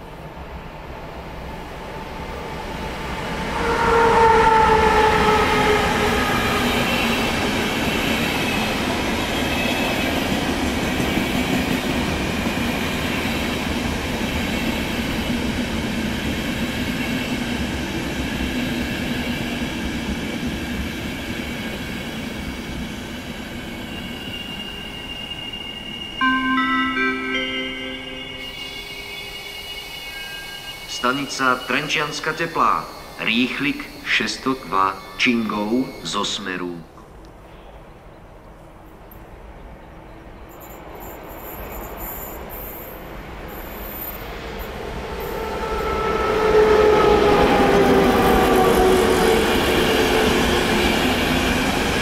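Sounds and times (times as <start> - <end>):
train coaches rumbling: 0.0 - 37.1, 38.2 - 52.0
train horn: 3.4 - 7.5, 26.2 - 31.7, 45.0 - 50.8
thin high squeal: 27.9 - 36.4.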